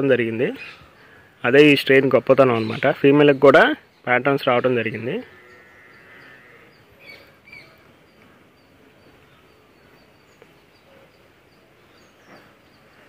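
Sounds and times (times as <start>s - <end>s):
birds chirping faintly: 0.0s - 13.0s.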